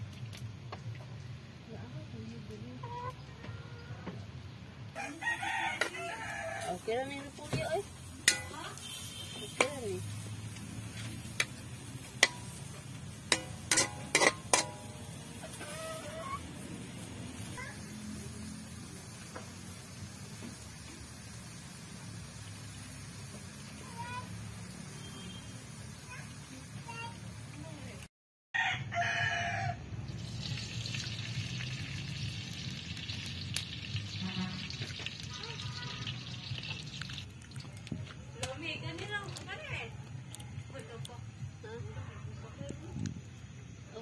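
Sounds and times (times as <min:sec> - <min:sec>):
rooster crowing: 0:05.0 - 0:07.0, 0:28.6 - 0:29.8
liquid sizzling in hot wok: 0:05.0 - 0:28.1, 0:30.0 - 0:39.9
metal spatula knocking on wok: 0:08.3 - 0:08.7, 0:12.2 - 0:12.6, 0:13.3 - 0:15.1.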